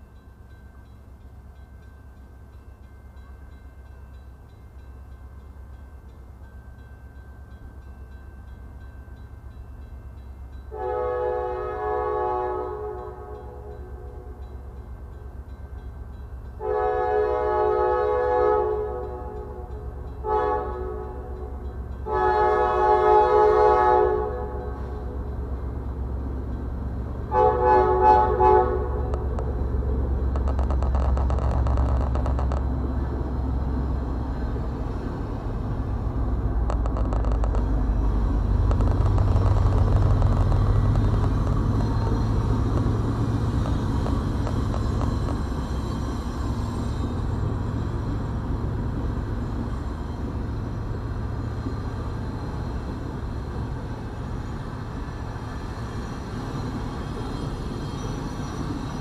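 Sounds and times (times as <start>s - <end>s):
diesel locomotives rumbling: 0.0s - 59.0s
train horn blast: 10.7s - 14.4s, 16.6s - 25.2s, 27.3s - 29.5s
freight cars rolling by: 24.4s - 59.0s.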